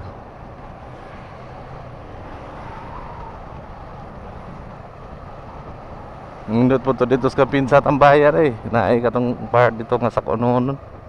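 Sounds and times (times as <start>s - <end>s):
motorcycle riding: 0.0s - 11.0s.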